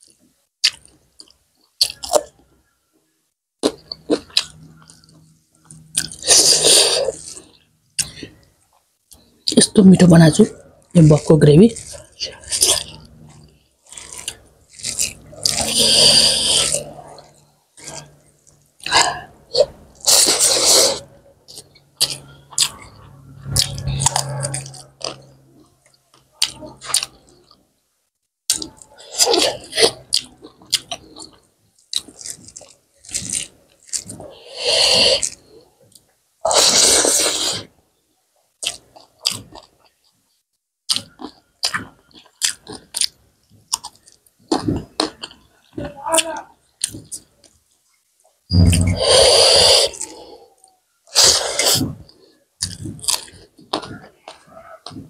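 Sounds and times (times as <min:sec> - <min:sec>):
chewing and wet lip-smacking: 0:03.6 - 0:06.5, 0:11.7 - 0:20.7, 0:21.5 - 0:27.6, 0:28.5 - 0:34.3, 0:38.6 - 0:40.0, 0:40.9 - 0:45.9, 0:46.8 - 0:47.6, 0:51.6 - 0:55.0.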